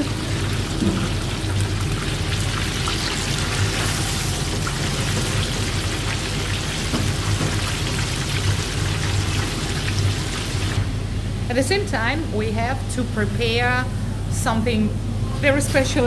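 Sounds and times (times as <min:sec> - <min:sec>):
hot oil bubbling in deep fryer: 0:00.0 - 0:10.8.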